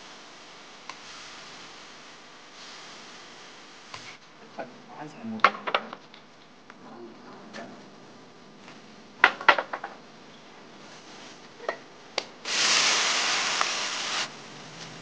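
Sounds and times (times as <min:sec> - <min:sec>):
food sizzling in hot oil: 0:12.5 - 0:14.3.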